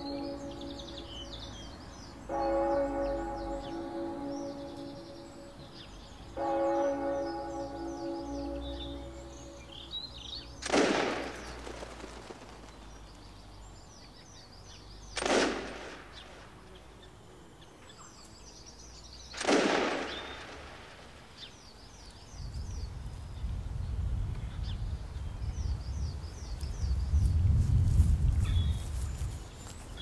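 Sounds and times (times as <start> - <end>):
church bell ringing: 0.0 - 10.6
birds chirping: 0.0 - 27.4, 28.2 - 30.0
gunshots with echo: 10.6 - 12.7, 15.2 - 16.5, 19.3 - 21.2.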